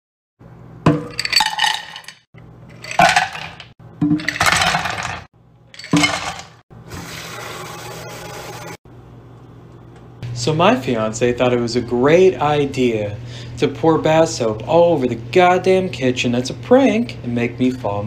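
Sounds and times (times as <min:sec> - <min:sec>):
ice cubes clattering into saucepan: 0:01.1 - 0:06.6.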